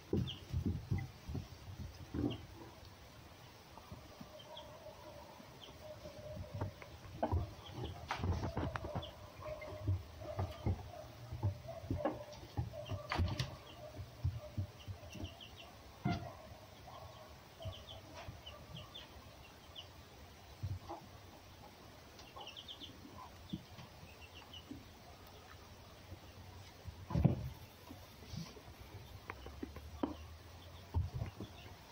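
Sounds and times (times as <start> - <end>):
animals knocking on wooden box: 0.0 - 2.7, 6.3 - 16.3, 27.0 - 27.6, 29.2 - 31.9.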